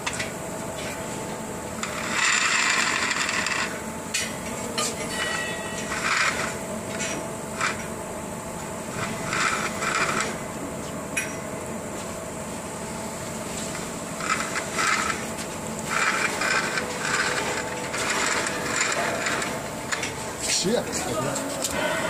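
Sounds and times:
steady hum: 0.0s - 22.0s
rope rasping through a pulley: 1.8s - 3.7s, 9.0s - 10.4s, 14.2s - 19.6s.

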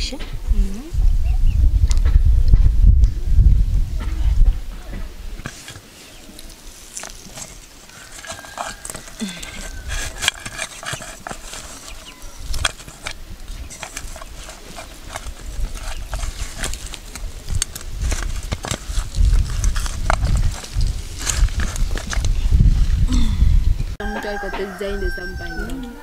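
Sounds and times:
low rumble: 0.0s - 5.4s.

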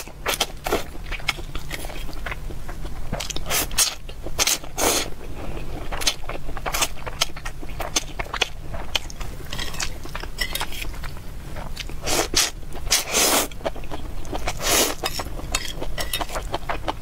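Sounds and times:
wet chewing and mouth clicks: 0.0s - 4.8s, 5.8s - 17.0s
slurping noodles: 12.0s - 13.5s, 14.4s - 15.0s.

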